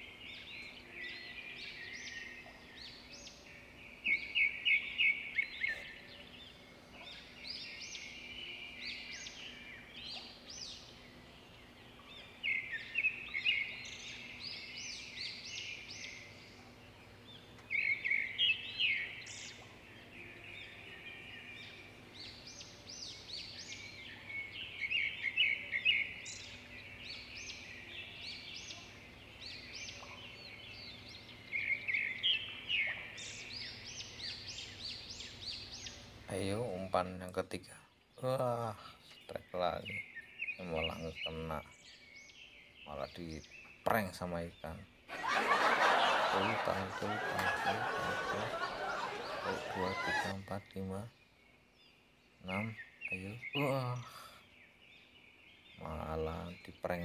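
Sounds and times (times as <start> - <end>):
soft bird chirps: 0.0 - 57.0
birds rapid chattering: 21.4 - 42.0, 42.8 - 57.0.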